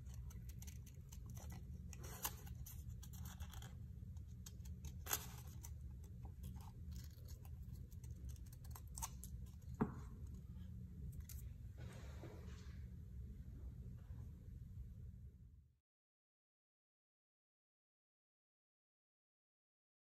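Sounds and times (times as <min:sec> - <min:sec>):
scissors snipping paper: 0:00.0 - 0:09.8.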